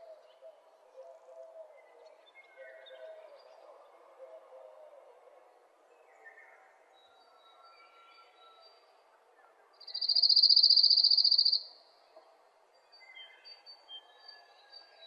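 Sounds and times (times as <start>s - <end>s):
cricket-like insect trill: 9.9s - 11.6s.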